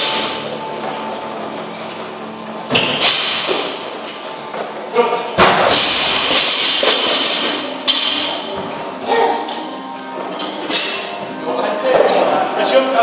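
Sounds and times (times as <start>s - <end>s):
music playing: 0.0s - 13.0s.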